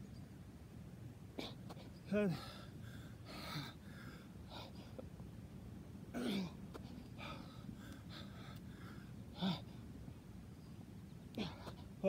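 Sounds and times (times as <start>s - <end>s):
man breathing hard and gasping: 2.3s - 5.0s, 6.3s - 9.8s.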